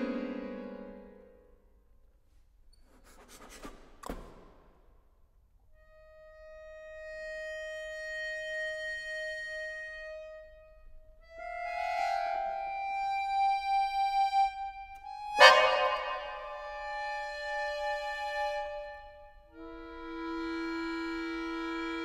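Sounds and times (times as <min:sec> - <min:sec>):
accordion held notes: 0:00.0 - 0:01.4, 0:06.0 - 0:22.0
loud accordion chord: 0:15.2 - 0:17.6.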